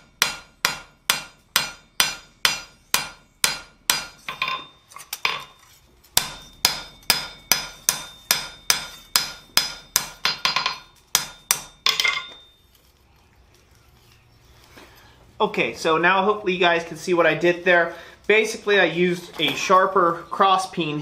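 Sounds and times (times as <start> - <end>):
hammer striking steel on anvil: 0.0 - 12.5
hammer set down on anvil: 4.3 - 5.6, 11.8 - 12.5.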